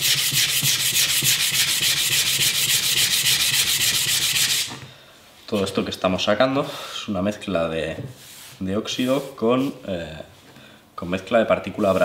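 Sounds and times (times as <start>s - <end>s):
sandpaper scrubbing steel blade: 0.0s - 4.8s.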